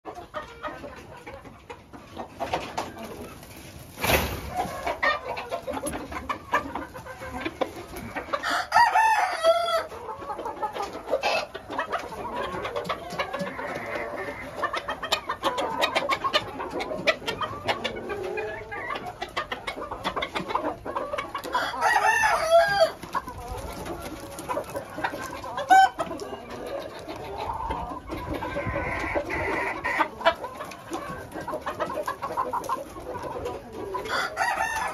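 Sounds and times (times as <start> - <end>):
chickens clucking: 0.0 - 34.9
rooster crowing: 8.4 - 9.9, 21.5 - 23.0, 34.1 - 34.9.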